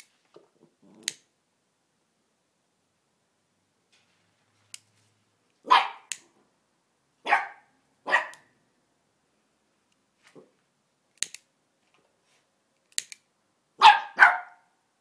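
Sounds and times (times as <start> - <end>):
puppy barking: 5.6 - 6.1, 7.2 - 8.5, 13.8 - 14.7.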